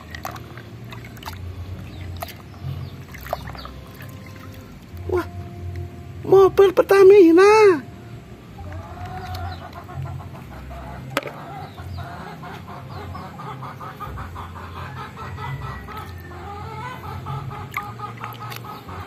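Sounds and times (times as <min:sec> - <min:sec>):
chickens clucking: 0:08.6 - 0:19.0.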